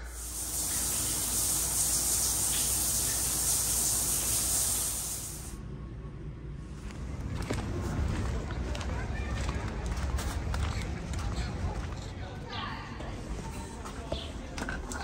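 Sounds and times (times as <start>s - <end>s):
shower spraying water: 0.0s - 5.6s.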